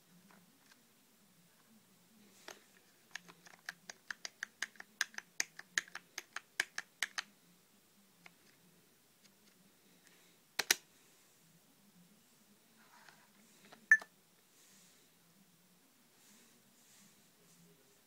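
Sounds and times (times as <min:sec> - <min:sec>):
computer keyboard clicking: 0:03.1 - 0:07.3, 0:10.6 - 0:10.8.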